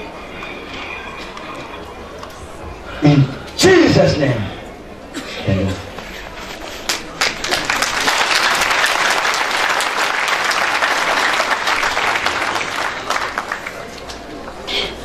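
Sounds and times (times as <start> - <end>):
crowd applauding: 6.9 - 14.4.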